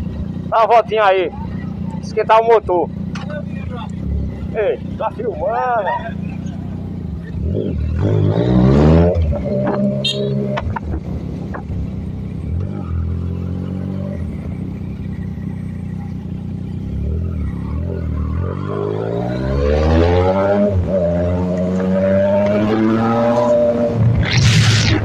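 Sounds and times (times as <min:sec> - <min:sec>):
motorcycle engine revving: 0:00.0 - 0:25.0.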